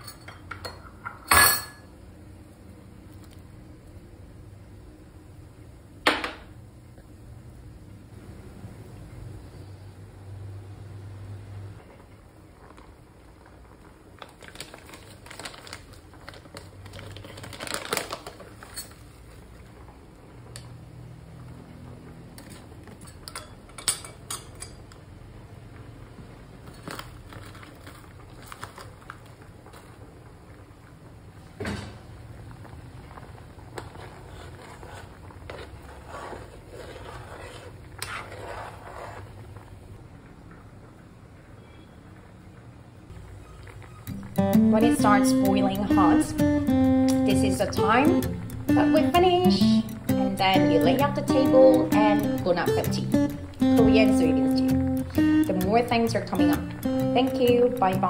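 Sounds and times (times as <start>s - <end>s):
stew boiling: 1.9s - 58.0s
foil packet crinkling: 14.1s - 19.0s, 26.6s - 30.0s
spoon scraping metal pot: 33.8s - 39.4s.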